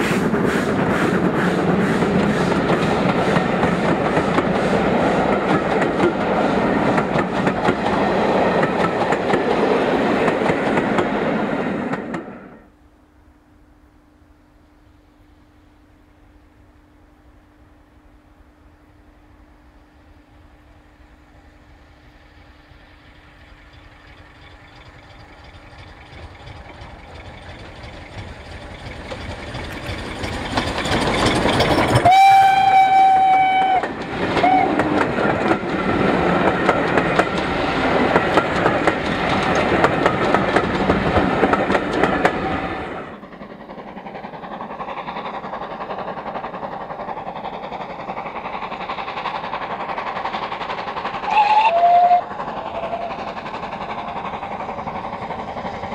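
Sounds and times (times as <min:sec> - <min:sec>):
steam locomotive running: 0:00.0 - 0:12.8, 0:14.7 - 0:55.9
distant train running: 0:00.0 - 0:55.9
steam whistle: 0:32.0 - 0:34.8, 0:51.3 - 0:53.2.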